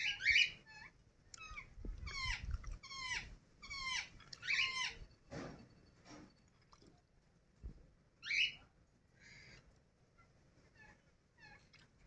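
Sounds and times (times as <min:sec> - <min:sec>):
parrot shrill calls: 0:00.0 - 0:05.0, 0:08.2 - 0:08.6.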